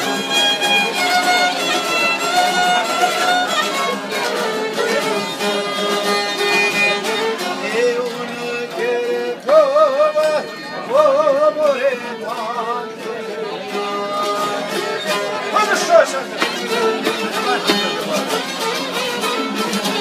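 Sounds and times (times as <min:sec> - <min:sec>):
strummed lute: 0:00.0 - 0:20.0
violin melody: 0:00.0 - 0:20.0
man singing: 0:04.3 - 0:18.7.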